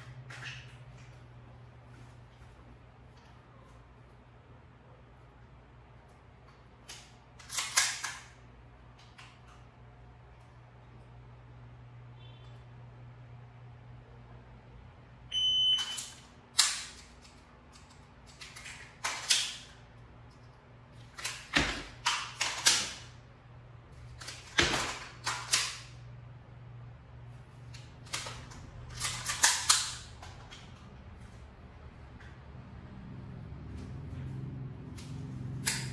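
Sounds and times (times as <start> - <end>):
electronic beep: 15.3 - 16.1
pistol metallic clicks: 28.1 - 30.1, 35.0 - 35.9.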